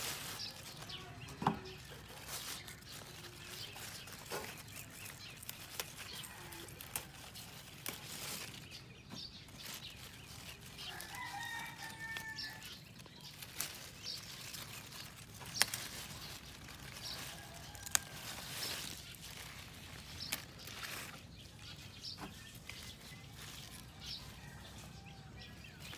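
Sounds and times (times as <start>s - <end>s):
lettuce leaves rustling and snapping: 0.0s - 25.9s
faint rooster crowing: 6.0s - 7.6s, 10.8s - 12.8s, 16.9s - 19.0s, 23.7s - 25.9s.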